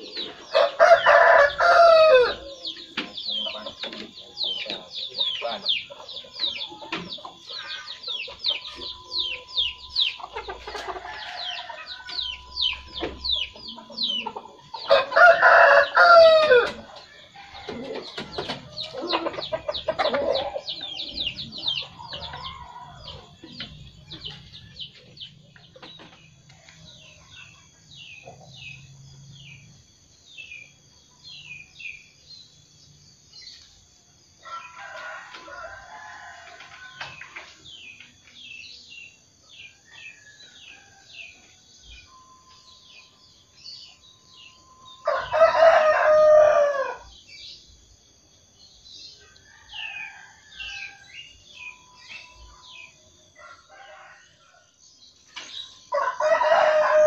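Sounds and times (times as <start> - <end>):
chickens clucking: 0.0 - 29.0
rooster crowing: 0.5 - 2.7, 7.5 - 18.1, 34.4 - 37.2, 44.9 - 47.2, 52.6 - 54.7, 55.9 - 57.0
small bird chirping: 2.3 - 15.0.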